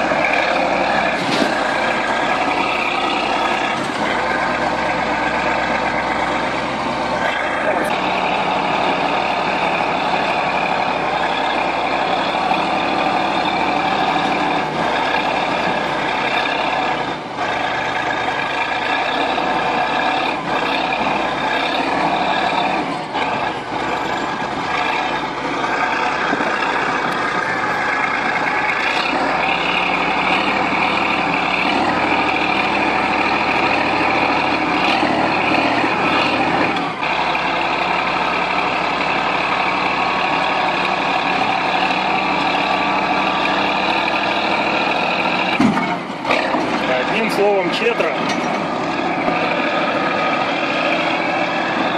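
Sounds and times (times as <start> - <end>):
bulldozer diesel engine running hard: 0.0 - 51.9.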